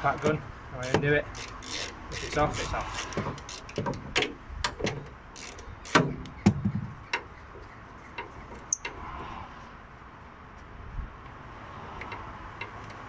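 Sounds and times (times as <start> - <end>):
hand ratchet clicking: 0.1 - 4.8, 5.4 - 6.4.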